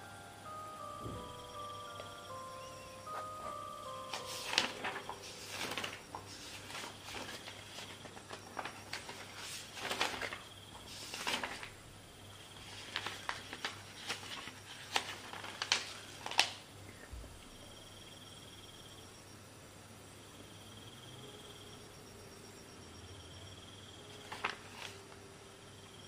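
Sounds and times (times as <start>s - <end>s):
paper rustling and shuffling: 3.1s - 11.8s, 12.5s - 16.7s, 24.1s - 25.2s.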